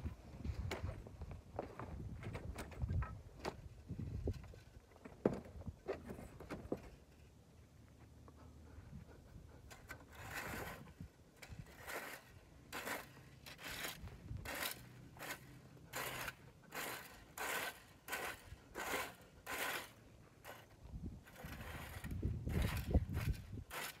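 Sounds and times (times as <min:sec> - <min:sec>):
rake scraping dry grass: 0:09.7 - 0:24.0.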